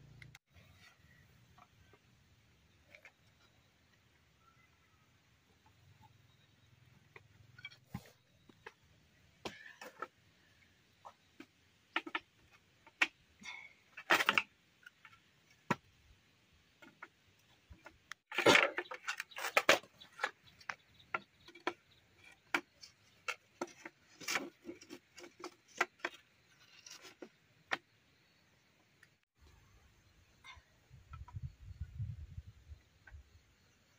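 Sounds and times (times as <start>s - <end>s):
bamboo poles knocking together: 11.4s - 13.2s, 17.8s - 27.8s.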